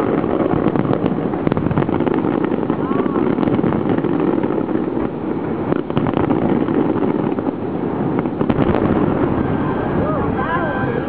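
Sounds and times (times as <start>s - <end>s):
fireworks bursting: 0.0s - 11.0s
fireworks popping and crackling: 0.0s - 11.0s.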